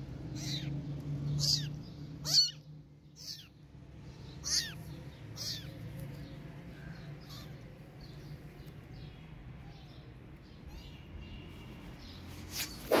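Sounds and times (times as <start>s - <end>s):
kitten meowing: 0.4s - 0.7s, 1.4s - 2.6s, 3.2s - 3.6s, 4.4s - 5.8s.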